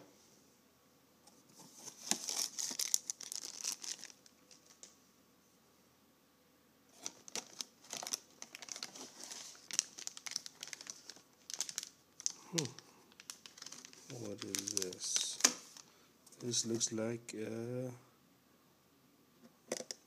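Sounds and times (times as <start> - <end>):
plastic bag crinkling: 1.8 - 4.9, 6.9 - 16.6.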